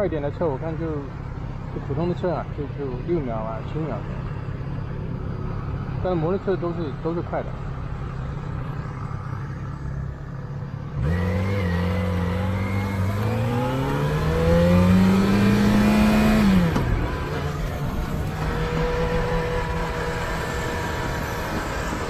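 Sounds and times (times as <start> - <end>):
motorcycle engine revving: 8.8 - 22.0.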